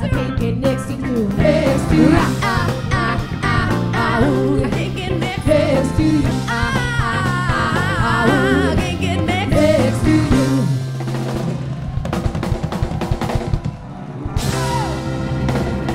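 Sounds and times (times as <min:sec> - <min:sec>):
bass line: 0:00.0 - 0:15.9
drum kit with cymbals: 0:00.0 - 0:15.9
women singing long notes: 0:01.3 - 0:10.8.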